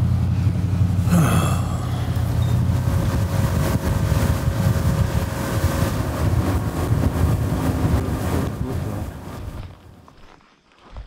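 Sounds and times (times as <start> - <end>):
boat motor running: 0.0 - 10.0
wind rumble on microphone: 2.0 - 10.0.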